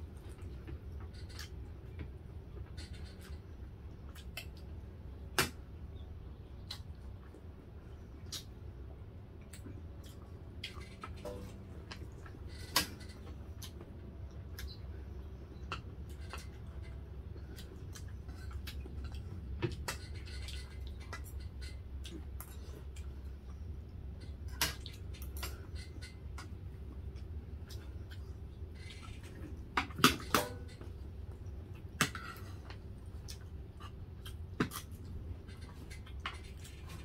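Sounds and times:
chewing and lip-smacking: 6.4 - 7.5, 8.1 - 11.2, 11.8 - 23.7, 31.4 - 37.0.

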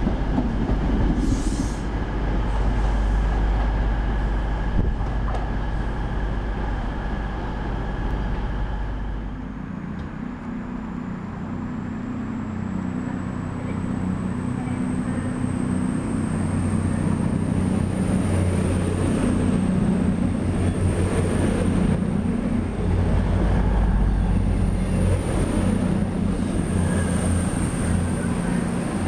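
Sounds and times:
train wheels on rail: 0.0 - 10.2, 13.6 - 29.0
diesel engine drone: 1.9 - 29.0.

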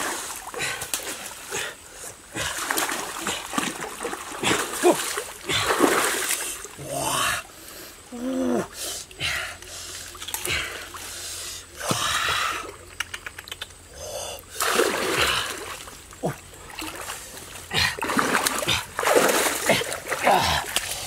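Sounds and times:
water splashing: 0.0 - 7.1, 14.5 - 21.0
small clicks: 13.0 - 13.8.

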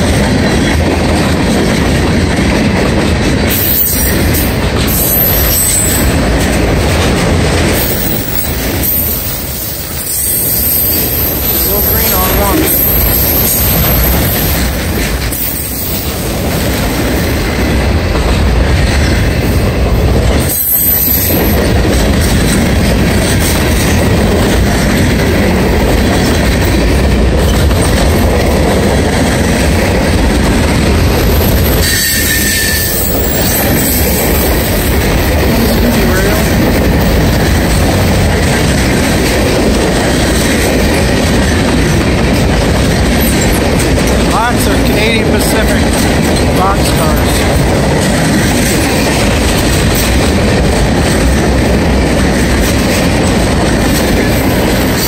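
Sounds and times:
train wheels rumbling on rail: 0.0 - 55.0
high wheel squeal: 4.9 - 6.2, 31.4 - 34.7.

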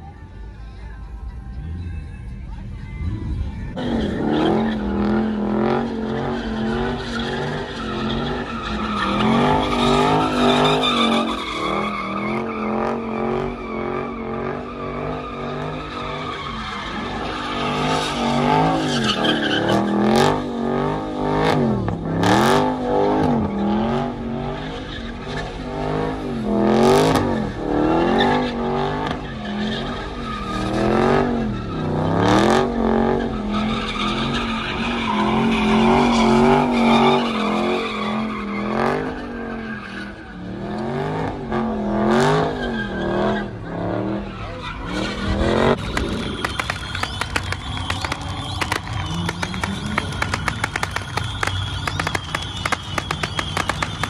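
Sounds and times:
car engine revving: 2.9 - 54.0
tyres screeching: 3.8 - 21.5, 22.4 - 40.9, 42.1 - 54.0
sharp cracks: 45.7 - 54.0.

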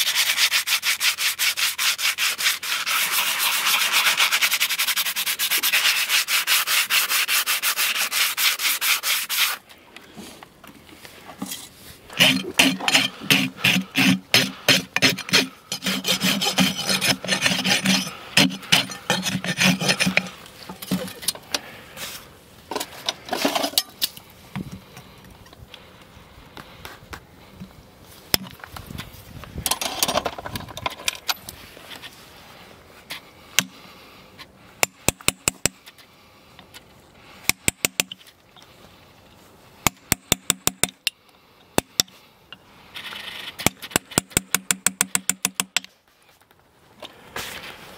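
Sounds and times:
rasp filing a hoof: 0.0 - 9.6, 12.1 - 21.2.

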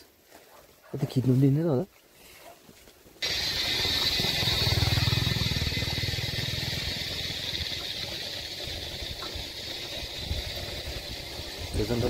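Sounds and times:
motorbike pulling ahead: 3.2 - 12.0
motorcycle engine running: 3.2 - 12.0
steady high-pitched drone: 3.2 - 12.0.

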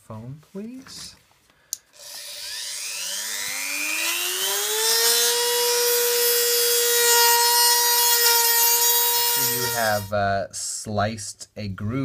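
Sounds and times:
rotary tool whine: 2.0 - 10.1.

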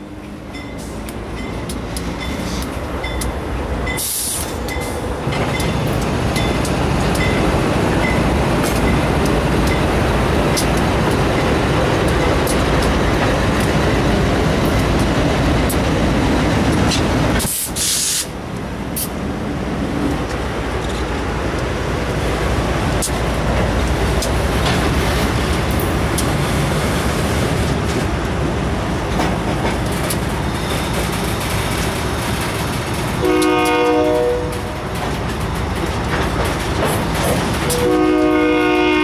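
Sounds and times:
diesel locomotive engine rumble: 0.0 - 39.0.

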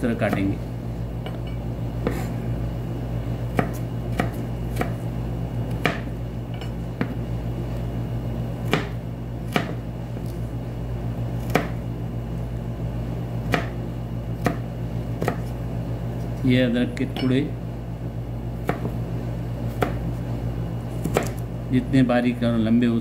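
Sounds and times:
knife chopping on a cutting board: 0.0 - 0.6, 1.2 - 2.4, 3.5 - 5.0, 5.7 - 7.2, 8.6 - 10.4, 11.4 - 11.8, 13.4 - 13.8, 14.4 - 15.6, 18.6 - 19.0, 19.7 - 20.2, 20.9 - 21.4.

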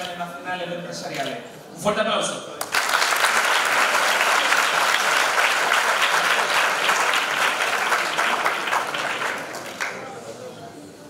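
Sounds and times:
audience applauding: 2.6 - 10.3.

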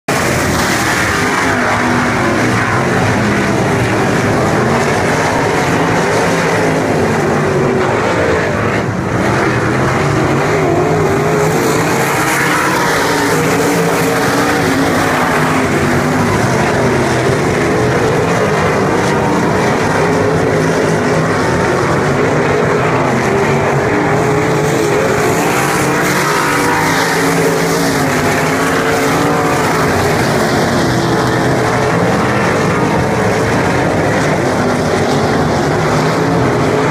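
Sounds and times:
racing car engines droning: 0.0 - 36.9.

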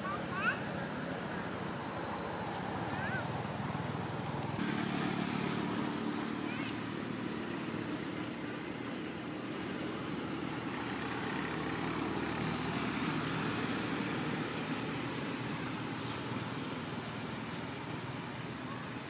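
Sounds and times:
distant road traffic rumble: 0.0 - 19.0.

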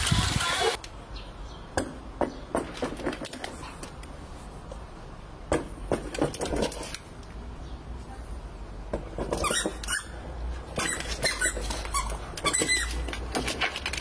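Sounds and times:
squeaky toy squeaks: 9.3 - 13.2
dog claws clicking on tiles: 10.8 - 14.0.

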